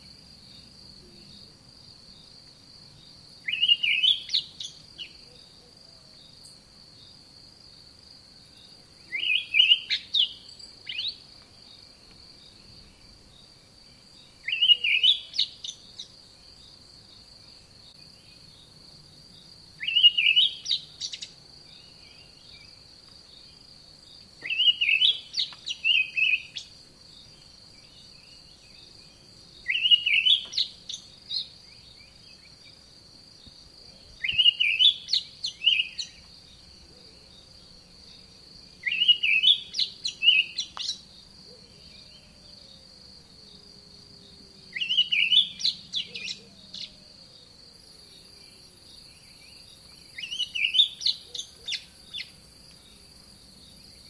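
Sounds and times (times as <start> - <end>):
high insect buzz: 0.0 - 54.0.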